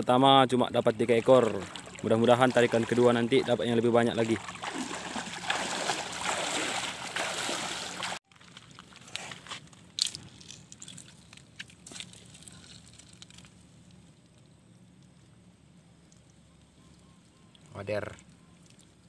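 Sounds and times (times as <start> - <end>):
water splashing around wading legs: 0.9 - 8.9
fishing net handled on stones: 8.3 - 13.7.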